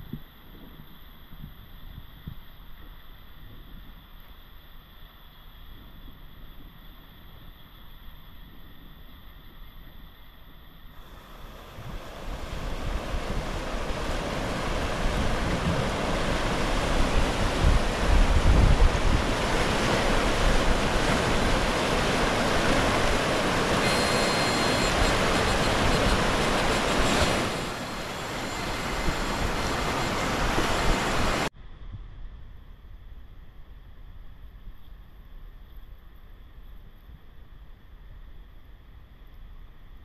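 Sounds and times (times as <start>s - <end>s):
river rapids rushing over rocks: 11.0s - 31.5s
wind buffeting microphone: 11.0s - 32.2s.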